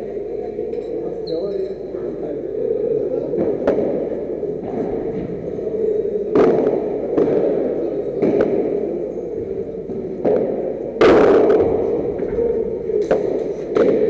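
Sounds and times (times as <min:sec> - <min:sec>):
steady hall hum: 0:00.0 - 0:14.0
ball struck by rackets: 0:03.4 - 0:04.8, 0:06.3 - 0:07.6, 0:08.2 - 0:08.8, 0:13.0 - 0:14.0.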